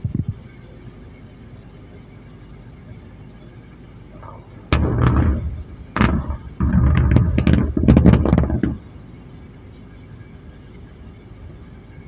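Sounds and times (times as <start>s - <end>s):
dynamite blasts booming and cracking: 4.2s - 9.1s.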